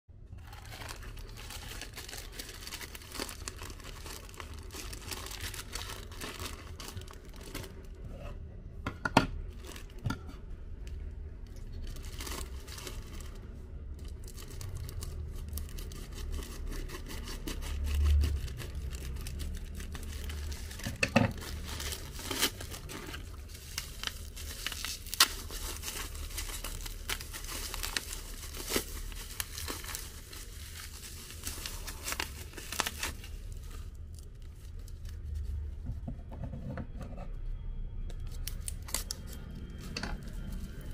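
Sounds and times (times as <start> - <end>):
plastic packaging crinkling: 0.3 - 8.0, 9.5 - 10.0, 11.6 - 35.7, 38.2 - 40.9
scissors cutting plastic bag: 0.4 - 7.9, 14.0 - 35.0, 38.2 - 40.9.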